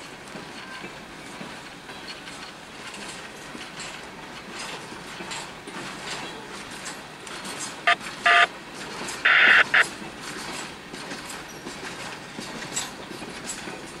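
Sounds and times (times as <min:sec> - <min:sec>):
rolling clatter of railcar: 0:00.0 - 0:14.0
touch-tone beeps from radio: 0:07.9 - 0:08.5, 0:09.3 - 0:09.8.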